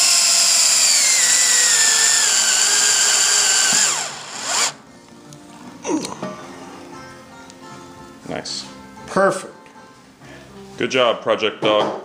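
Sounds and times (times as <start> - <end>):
power drill driving a screw: 0.0 - 4.8.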